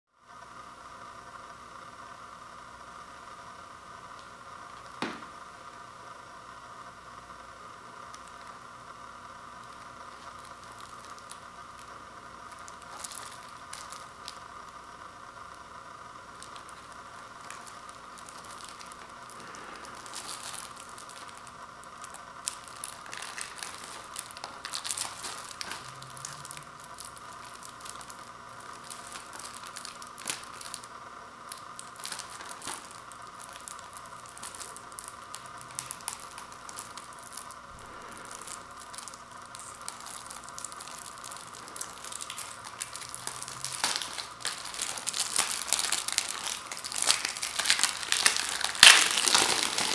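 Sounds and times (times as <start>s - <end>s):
plastic shrink-wrap crinkling: 9.5s - 49.9s.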